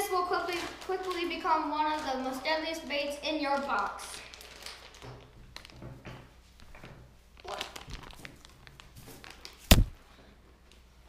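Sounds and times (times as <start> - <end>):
plastic bag rustling: 0.0 - 5.8, 6.5 - 10.0
loud sharp knock: 9.7 - 10.0.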